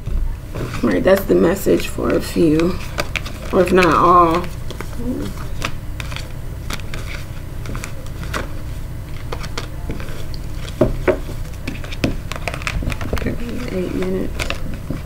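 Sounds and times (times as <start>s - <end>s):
low steady hum: 0.0s - 15.0s
cards clicking and tapping: 2.0s - 8.5s, 9.1s - 15.0s.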